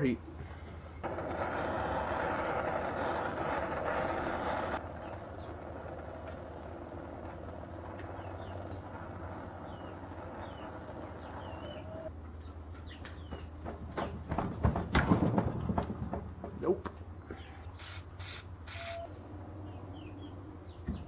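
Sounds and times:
gas torch flame hissing: 0.8 - 12.1, 17.7 - 19.0.

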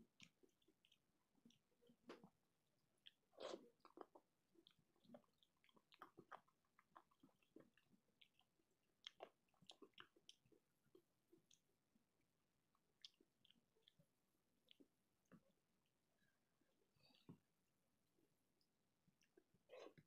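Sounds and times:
chewing and mouth smacks: 0.0 - 2.4, 3.0 - 15.6, 19.0 - 20.0.

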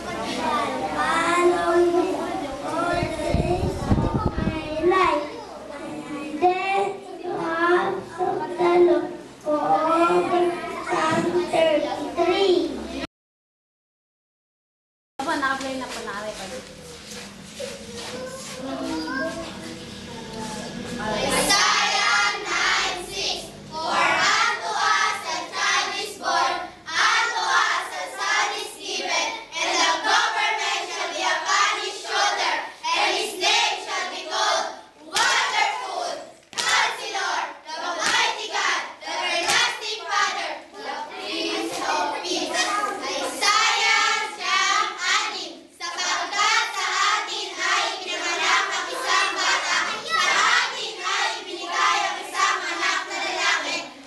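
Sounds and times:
children singing: 20.4 - 54.0.

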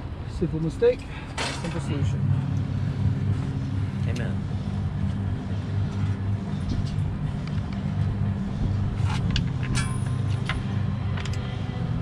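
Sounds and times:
low machinery hum: 0.0 - 12.0
metal clinks: 9.6 - 10.9.

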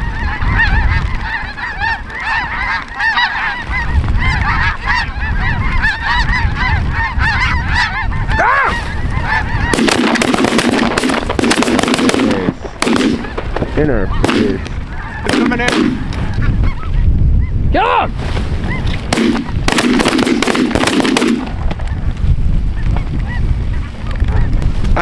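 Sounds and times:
rough crackling noise: 0.0 - 17.0, 18.1 - 25.0
geese honking: 0.0 - 17.1.

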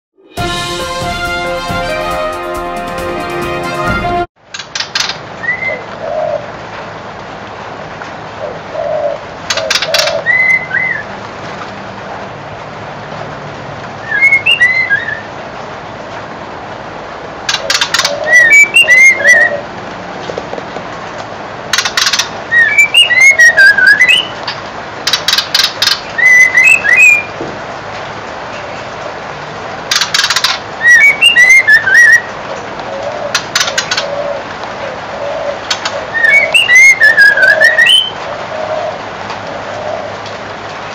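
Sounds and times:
bird singing whistled notes: 18.2 - 19.5, 22.5 - 24.3, 26.2 - 27.3, 30.8 - 32.3, 36.2 - 38.2.

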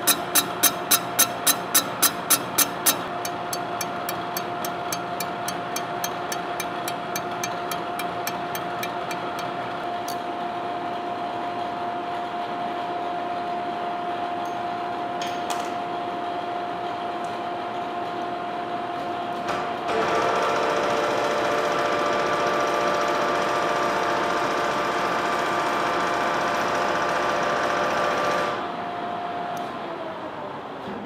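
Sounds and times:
cutter ticking: 0.0 - 9.6.

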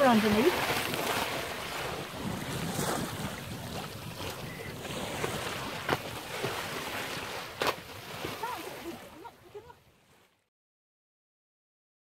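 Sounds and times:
sharp splash: 0.0 - 9.4
wind buffeting microphone: 0.0 - 9.6
water rushing along boat hull: 0.0 - 10.5.

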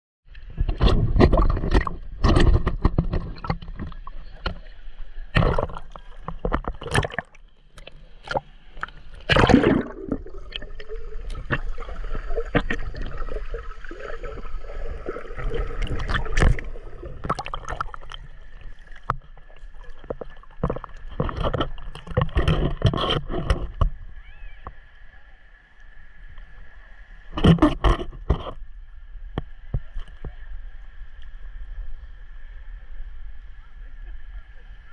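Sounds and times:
sea water splashing: 0.4 - 28.5
muffled underwater gurgling: 0.5 - 25.2.

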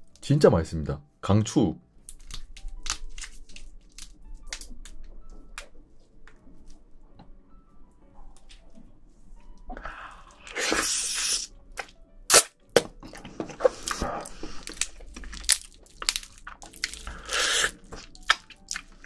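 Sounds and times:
crab shell cracking and crunching: 2.0 - 5.0, 11.8 - 19.0
chewing: 13.0 - 19.0.

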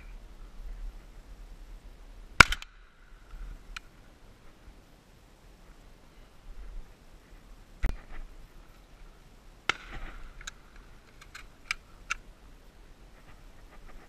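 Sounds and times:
shotgun shots: 2.4 - 2.8, 9.7 - 10.4.

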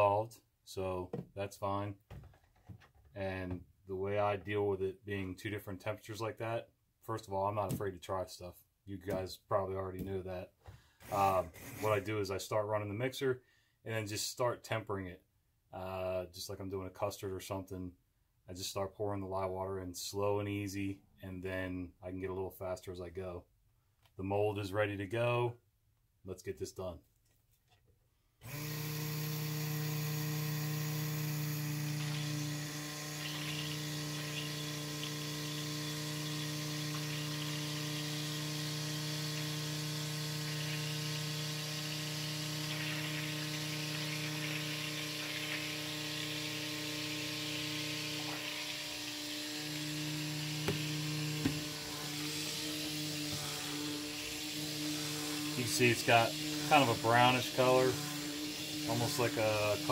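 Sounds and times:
stick blender motor humming: 28.4 - 59.9.

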